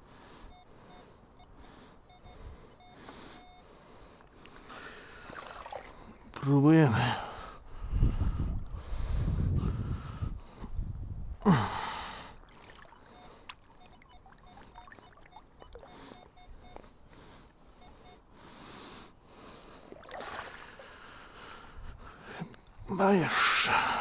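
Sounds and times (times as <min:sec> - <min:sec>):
metal detector beeps: 0:00.4 - 0:04.9, 0:12.7 - 0:18.3
water splash: 0:05.2 - 0:06.0, 0:12.4 - 0:15.9, 0:19.9 - 0:20.8
water sloshing and trickling: 0:05.2 - 0:06.3, 0:12.3 - 0:16.4, 0:19.8 - 0:23.0
breathy grunt: 0:11.4 - 0:12.4.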